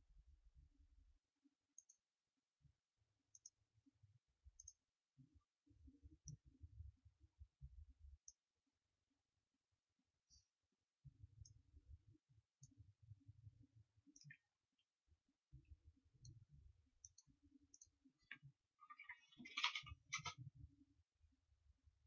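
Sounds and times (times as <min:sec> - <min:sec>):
mouse clicks: 0:01.8 - 0:02.0, 0:14.1 - 0:14.5, 0:17.0 - 0:20.4.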